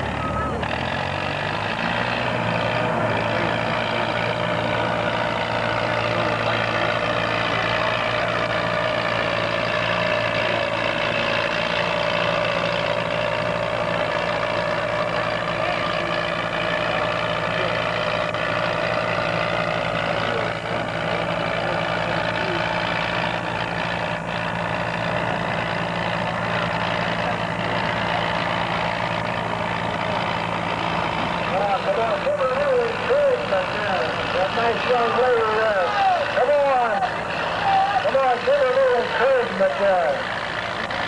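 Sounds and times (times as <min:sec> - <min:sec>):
tractor engine under load: 0:00.0 - 0:41.0.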